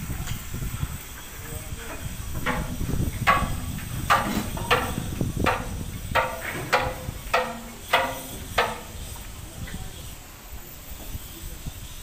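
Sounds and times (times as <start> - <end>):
wind buffeting microphone: 0.0 - 12.0
hammer striking steel: 2.4 - 9.3.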